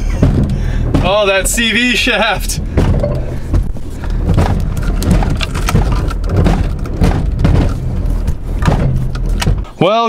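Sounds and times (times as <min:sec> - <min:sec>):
car cabin rough rumble: 0:00.0 - 0:09.8
clicks and clunks: 0:04.3 - 0:09.7.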